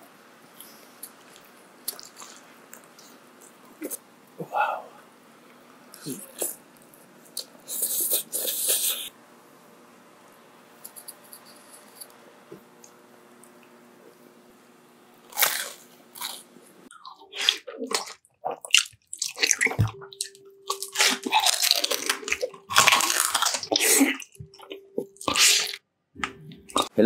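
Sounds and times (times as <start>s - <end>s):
faint steady hum: 0.0s - 27.0s
crunchy food chewing: 0.6s - 4.0s, 15.2s - 25.8s.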